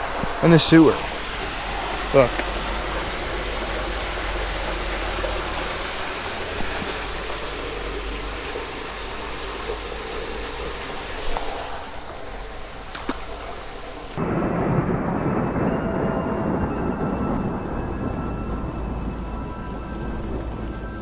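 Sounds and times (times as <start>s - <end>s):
rushing hiss: 0.0s - 14.2s
low rumble: 0.0s - 21.0s.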